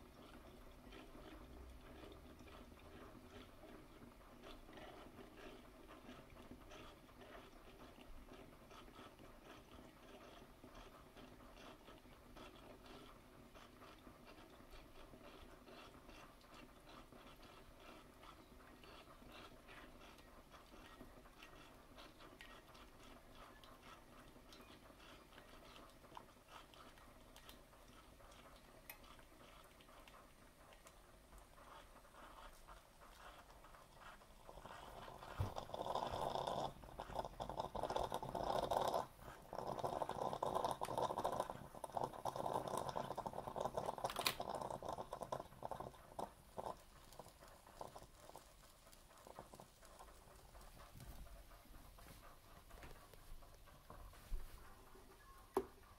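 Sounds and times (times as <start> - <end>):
espresso machine running: 34.5 - 48.4.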